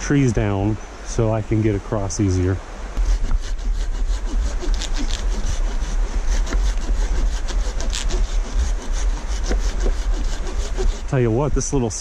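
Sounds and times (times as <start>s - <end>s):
hand saw cutting a tree: 3.0s - 11.2s.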